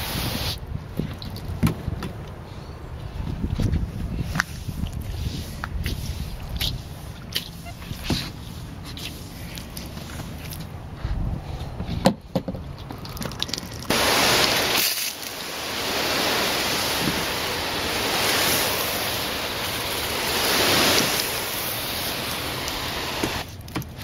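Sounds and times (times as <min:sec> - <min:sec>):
hose nozzle spraying water: 0:13.2 - 0:23.5.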